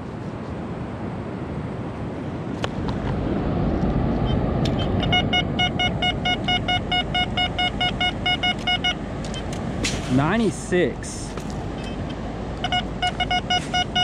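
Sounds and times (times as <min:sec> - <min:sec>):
outdoor background rush: 0:00.0 - 0:14.0
metal detector beeping: 0:04.2 - 0:09.6, 0:11.8 - 0:14.0.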